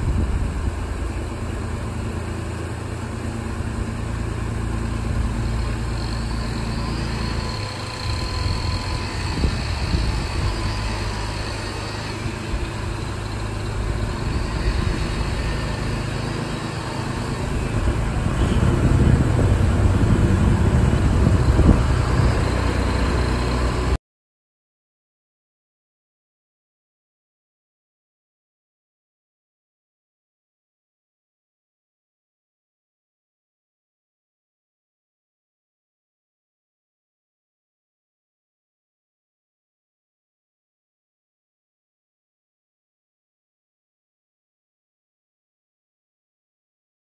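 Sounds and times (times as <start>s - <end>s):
boat engine running: 0.0s - 24.0s.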